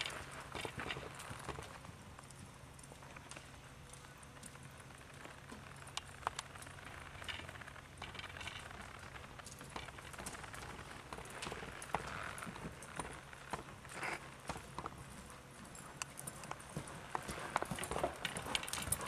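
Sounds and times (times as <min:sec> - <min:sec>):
sharp hoof clicks: 0:00.0 - 0:19.0
muffled hoofbeats on dirt: 0:09.6 - 0:19.0.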